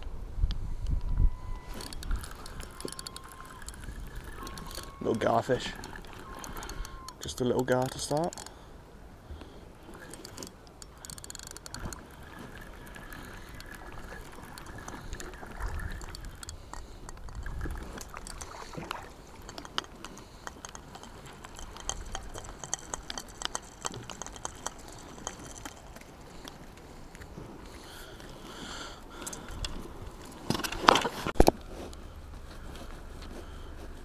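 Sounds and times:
wind gusts on microphone: 0.0s - 7.2s, 11.7s - 19.6s
fishing reel whirring: 1.2s - 8.6s, 9.8s - 26.4s.

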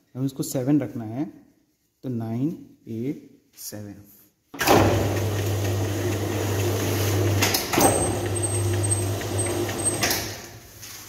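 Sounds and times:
machine clunk: 4.6s - 5.2s, 7.4s - 10.4s
dough sheeter motor humming: 4.6s - 10.0s.

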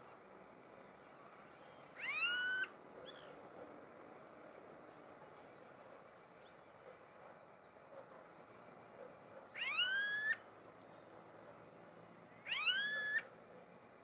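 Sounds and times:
bird whining calls: 2.0s - 2.7s, 9.6s - 10.4s, 12.5s - 13.2s.

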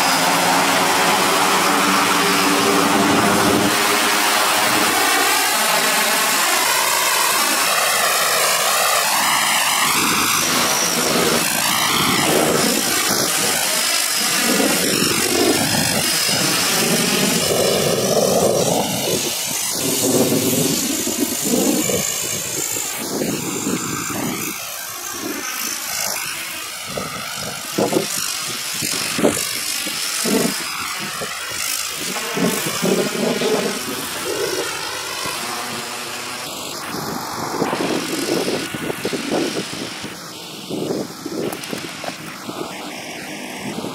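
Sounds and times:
aircraft engines droning: 0.0s - 43.9s.

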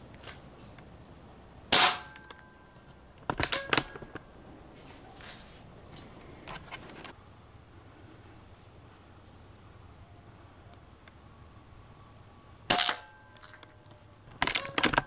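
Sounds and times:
air gun shot: 1.7s - 2.2s
metallic bolt clicks: 12.7s - 15.0s.

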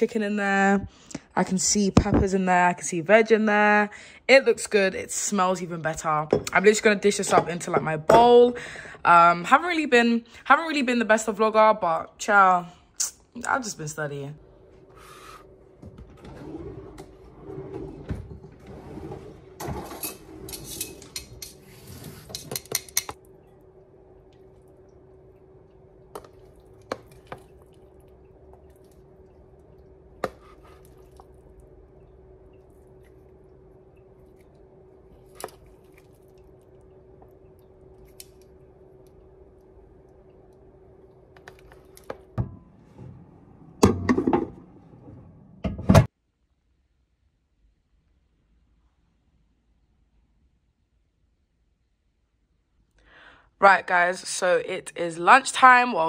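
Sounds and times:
microwave oven hum: 13.6s - 46.1s
tongs and bowl clinking: 20.5s - 23.2s.

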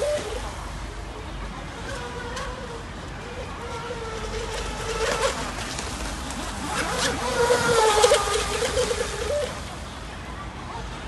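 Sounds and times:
electric motor whining: 2.0s - 9.7s.

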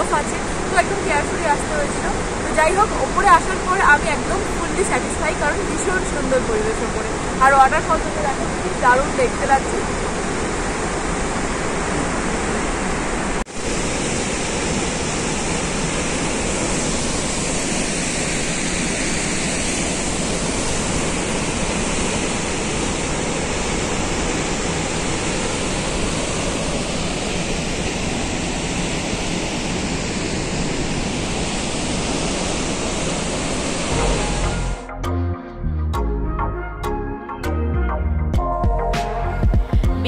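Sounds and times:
waterfall rushing: 0.0s - 34.9s.

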